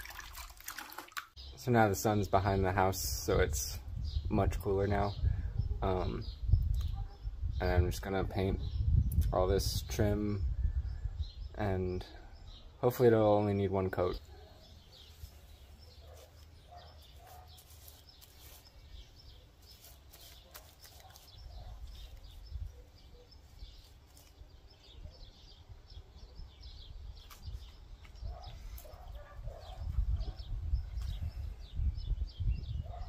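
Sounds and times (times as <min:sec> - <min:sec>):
small birds chirping: 0:01.3 - 0:33.0.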